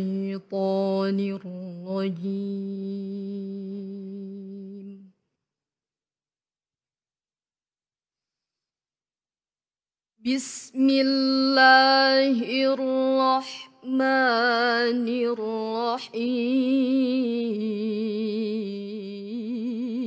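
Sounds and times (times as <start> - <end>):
girl reciting melodically: 0.0 - 4.8, 10.2 - 20.0.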